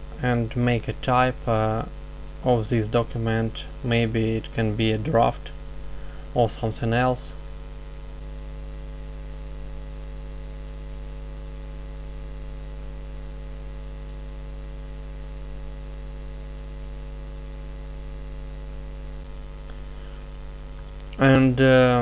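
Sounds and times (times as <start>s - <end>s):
faint hiss: 0.0s - 7.4s, 19.6s - 22.0s
electrical mains hum: 0.0s - 22.0s.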